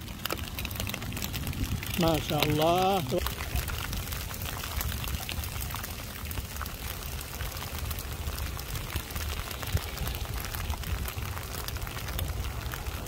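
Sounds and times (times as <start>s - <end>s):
rain on water and wet ground: 0.0s - 13.0s.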